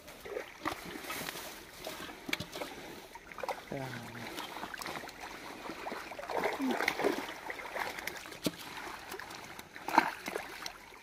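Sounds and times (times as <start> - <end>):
fish thrashing and splashing: 0.0 - 11.0
sloshing water: 0.0 - 11.0.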